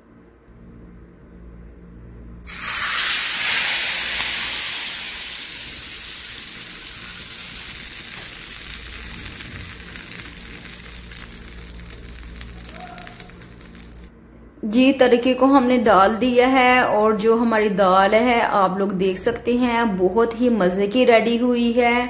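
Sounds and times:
hot oil sizzling: 2.5s - 14.1s.

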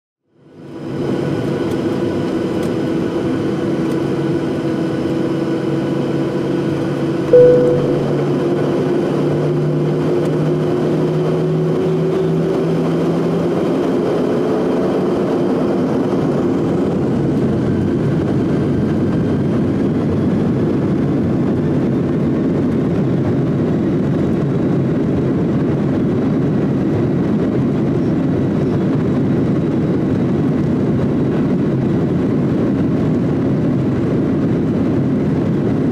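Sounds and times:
brief loud tone: 7.3s - 8.5s.

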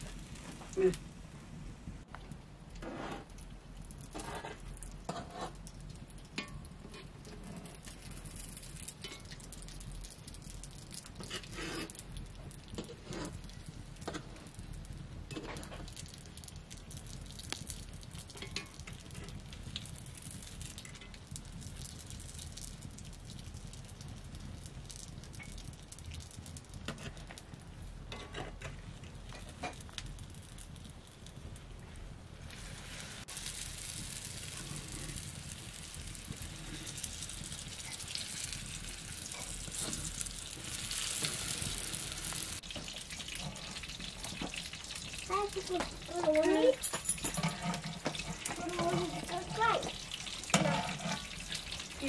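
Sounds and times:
wood fire crackling: 0.0s - 52.0s
food sizzling in oil: 4.0s - 52.0s
utensils clicking on pan: 4.1s - 9.9s, 18.3s - 19.4s, 33.3s - 52.0s.

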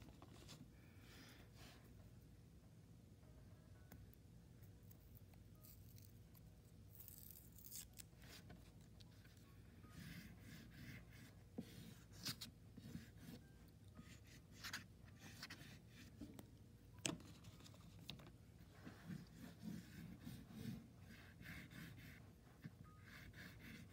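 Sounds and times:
oil pastel scratching on paper: 9.9s - 13.4s, 14.1s - 16.2s, 18.8s - 23.9s.

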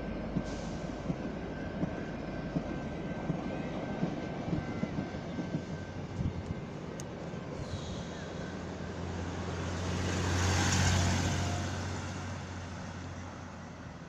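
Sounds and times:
vehicle passing by: 7.8s - 13.2s.

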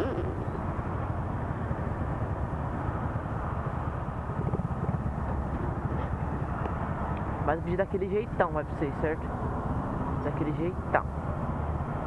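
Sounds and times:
city traffic: 0.0s - 12.0s.

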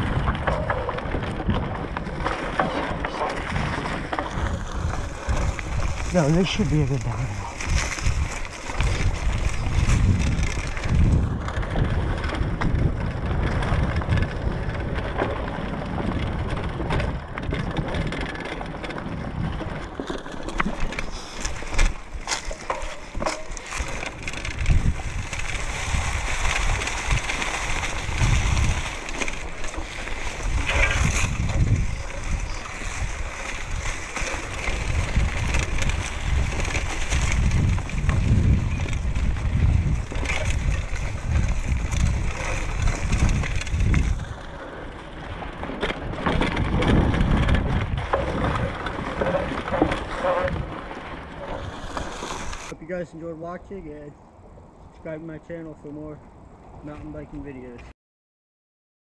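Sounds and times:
bike knocking over bumps: 0.0s - 6.0s
wind buffeting microphone: 0.0s - 20.0s, 21.0s - 57.8s
tyres rolling over dry leaves: 0.0s - 52.8s.

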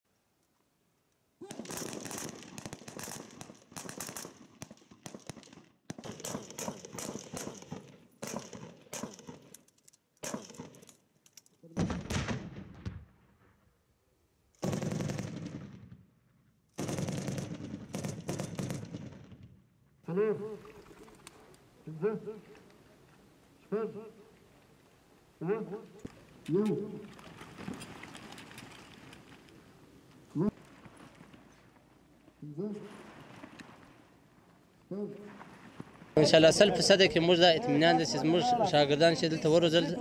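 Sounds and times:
rapid gunshots: 1.5s - 9.4s, 10.2s - 10.8s, 14.6s - 15.7s, 16.8s - 19.2s.

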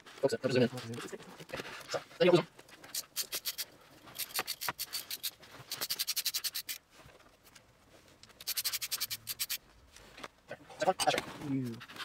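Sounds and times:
ratchet wrench clicking: 2.9s - 3.6s, 4.2s - 6.8s, 8.4s - 9.6s.

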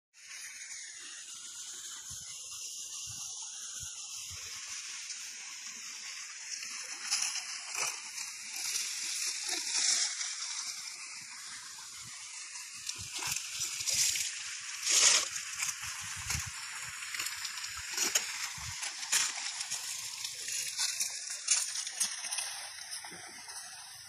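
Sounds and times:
water sloshing and splashing: 6.5s - 24.0s.

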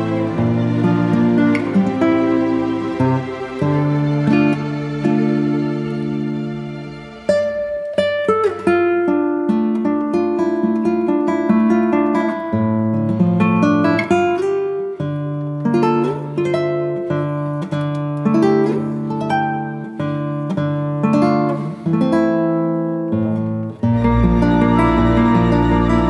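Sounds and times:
acoustic guitar plucked tune: 0.0s - 26.0s.

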